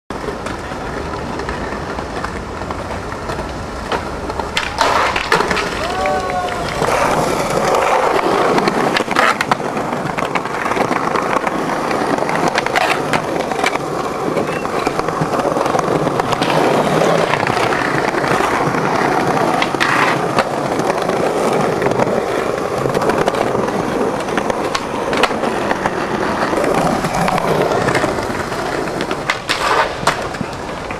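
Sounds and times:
skateboard clacks: 0.1 - 30.9
skateboard wheels rolling on pavement: 0.1 - 30.9.

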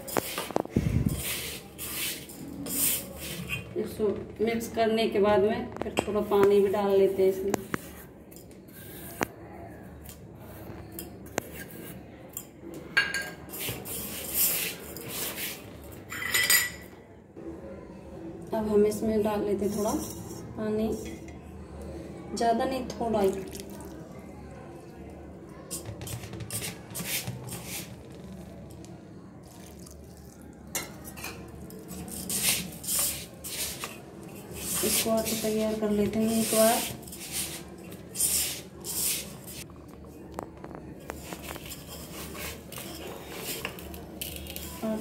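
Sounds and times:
dry mix scraping in metal pot: 0.0 - 4.0, 25.7 - 28.4, 30.7 - 39.6, 41.0 - 45.0
hand rubbing crumbly dough: 25.8 - 28.5, 32.1 - 39.6.

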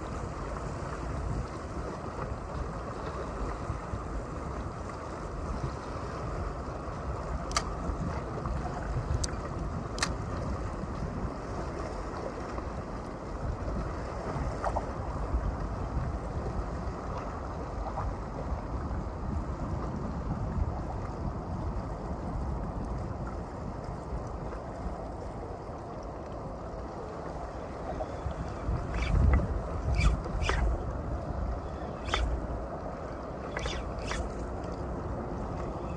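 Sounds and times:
wind buffeting microphone: 0.0 - 35.9
water lapping against seawall: 21.9 - 35.9.

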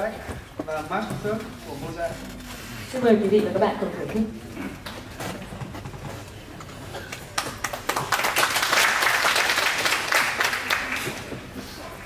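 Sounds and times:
audience applauding: 7.0 - 11.4.

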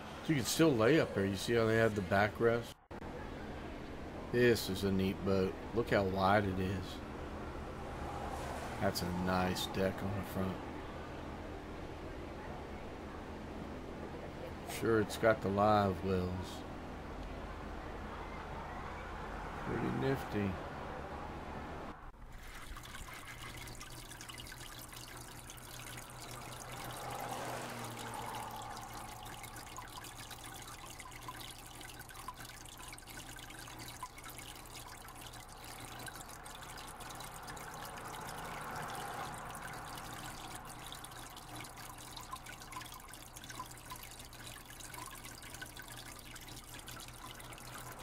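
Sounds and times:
water trickling over rocks: 8.0 - 10.6, 22.2 - 48.0.

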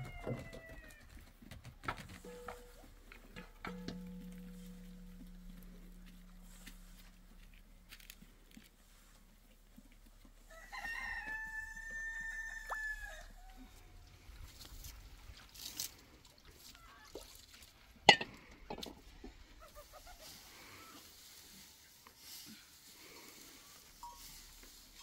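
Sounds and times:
rooster crowing: 10.5 - 14.0.

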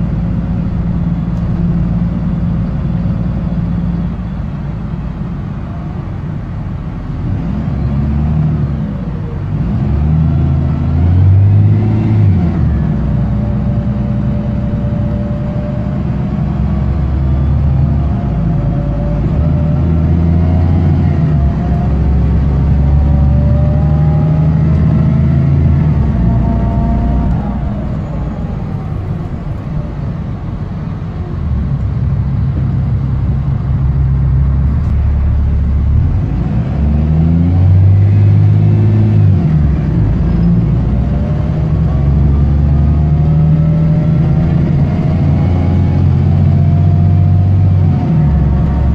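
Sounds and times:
bus diesel engine through gear changes: 0.0 - 48.9.

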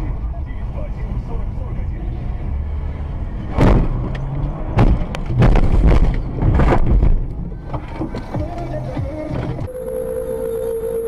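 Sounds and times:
engine and road rumble: 0.0 - 11.0
bangs and crunching: 3.5 - 7.2.

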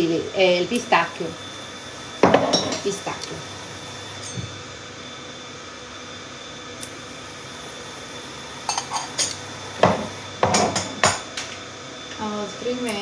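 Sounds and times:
kitchenware clinking and knocking: 2.2 - 2.9, 9.8 - 11.3.

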